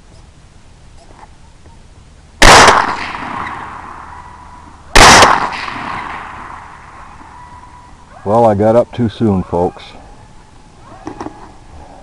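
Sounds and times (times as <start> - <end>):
rifle shots with echo: 2.4 - 4.3, 4.9 - 7.0.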